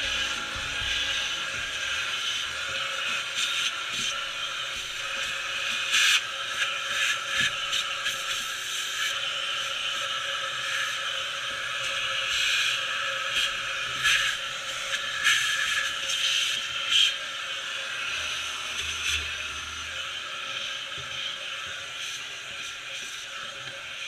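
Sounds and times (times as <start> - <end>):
vacuum hose hissing: 0.0 - 24.0.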